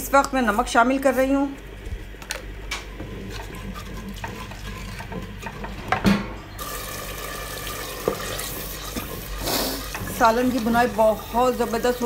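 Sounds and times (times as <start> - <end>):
wooden spoon scraping pot: 2.8 - 6.0, 7.6 - 12.0
hot oil sizzling: 6.6 - 12.0.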